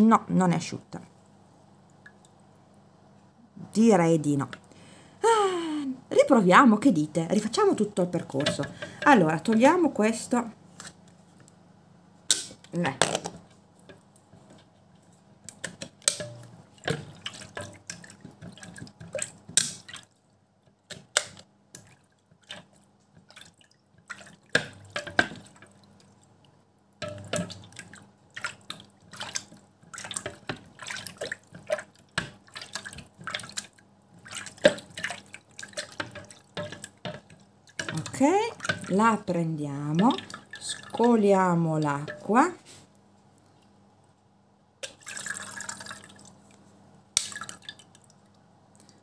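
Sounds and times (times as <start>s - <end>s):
splashing and dripping water: 7.4s - 9.9s, 13.4s - 42.5s, 44.8s - 46.6s, 47.2s - 49.0s.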